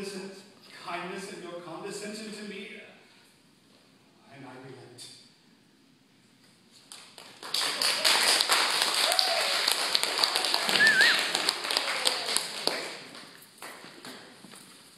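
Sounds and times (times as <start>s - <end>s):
audience applauding: 7.0s - 14.2s
short cheer: 9.0s - 9.8s, 10.5s - 12.4s.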